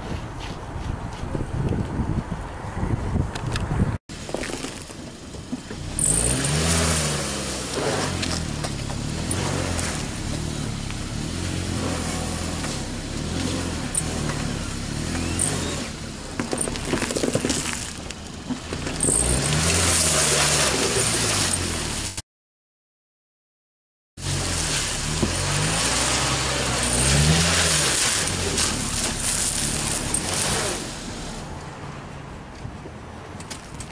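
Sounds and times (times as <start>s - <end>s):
car engine revving: 5.4s - 22.2s, 24.2s - 31.6s
tyres spinning on ice: 16.4s - 21.7s.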